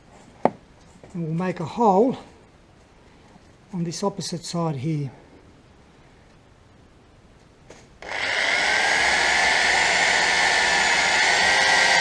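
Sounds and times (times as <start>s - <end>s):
electric drill boring metal: 8.0s - 12.0s.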